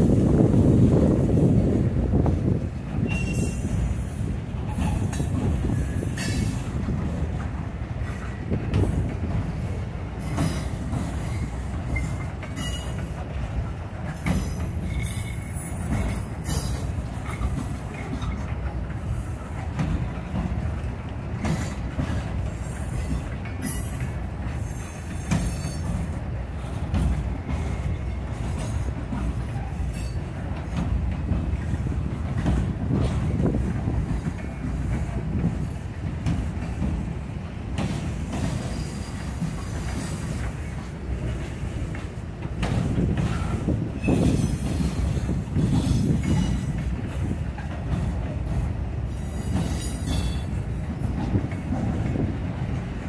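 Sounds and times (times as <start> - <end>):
train clanks: 0.0 - 53.0
train wheels rumbling on rail: 0.0 - 53.0
wheel squeals: 3.0 - 6.6.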